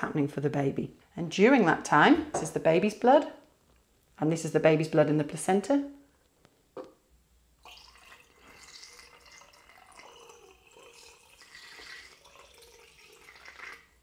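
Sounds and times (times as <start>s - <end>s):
liquid pouring and trickling: 7.6s - 14.0s.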